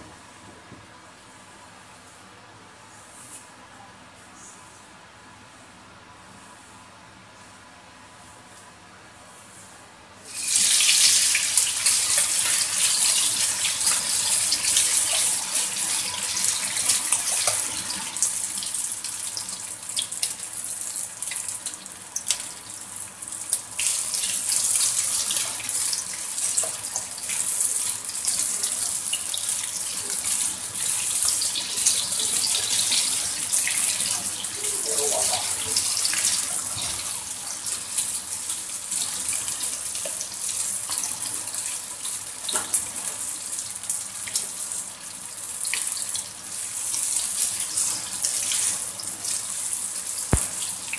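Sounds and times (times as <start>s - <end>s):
meat sizzling in hot oil: 10.3s - 50.9s.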